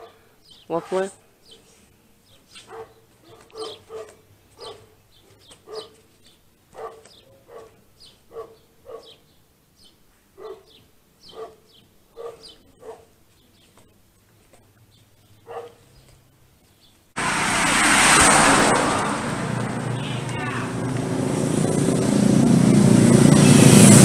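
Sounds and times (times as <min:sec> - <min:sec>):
dog barking: 0:00.0 - 0:01.6, 0:02.3 - 0:06.0, 0:06.7 - 0:09.2, 0:10.4 - 0:13.2, 0:15.4 - 0:15.9.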